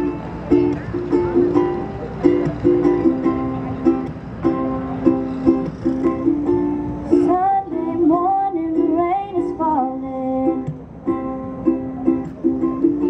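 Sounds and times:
ukulele strumming chords: 0.0 - 13.0
woman singing: 7.1 - 10.7.

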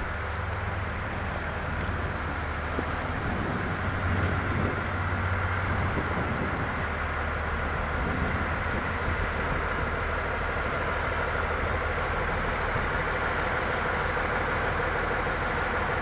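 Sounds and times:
diesel railcar engine drone: 0.0 - 16.0.

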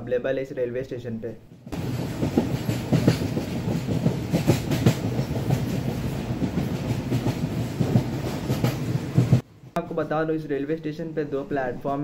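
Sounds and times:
freight train rumbling: 1.6 - 9.8.

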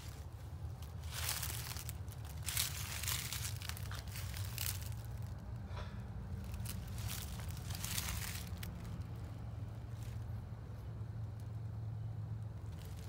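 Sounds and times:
footsteps crunching dry leaves: 0.0 - 5.6, 6.2 - 10.4, 12.7 - 13.0
steady low rumble: 0.0 - 13.0.

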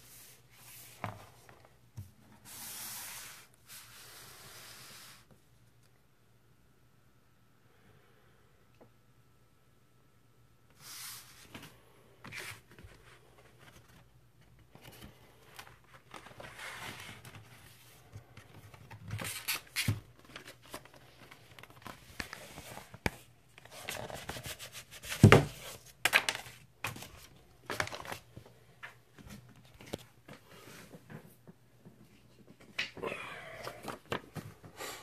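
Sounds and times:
paper and cardboard rustling: 12.3 - 28.4.

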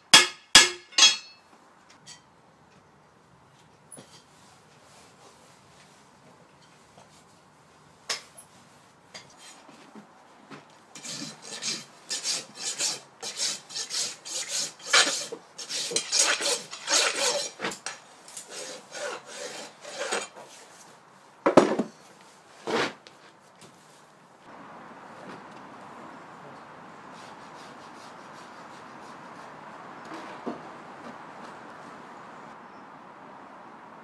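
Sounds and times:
rasp filing hoof: 11.0 - 17.8, 18.4 - 20.5.

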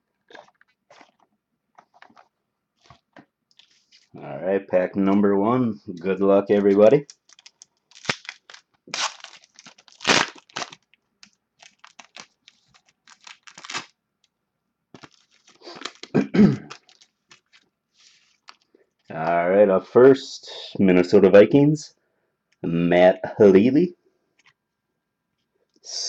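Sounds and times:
wrapper tearing and crinkling: 7.0 - 14.0, 15.0 - 18.6.

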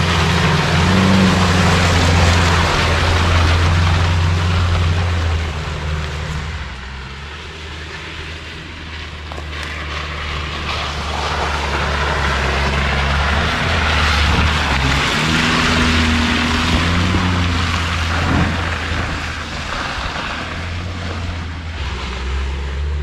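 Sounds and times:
road noise: 0.0 - 23.0
vehicle engine droning: 0.0 - 23.0.

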